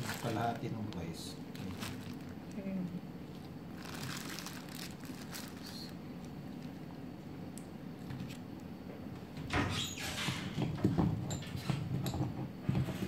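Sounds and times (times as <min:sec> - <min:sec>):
food wrapping crinkling: 0:00.0 - 0:02.6, 0:03.2 - 0:07.0.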